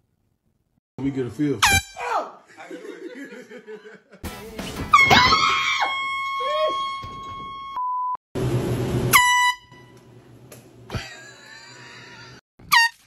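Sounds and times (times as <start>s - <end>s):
air horn blasting: 1.6s - 2.1s, 9.1s - 10.0s.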